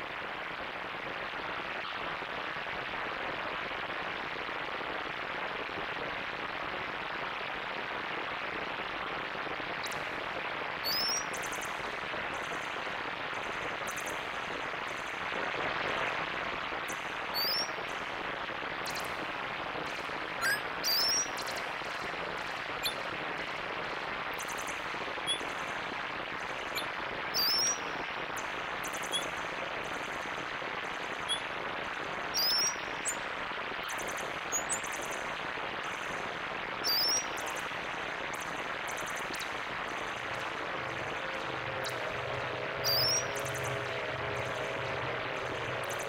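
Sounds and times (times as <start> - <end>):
synthesized rushing water noise: 0.0 - 46.0
bright crackling bursts: 8.1 - 46.0
synthesized high chirps: 40.3 - 46.0.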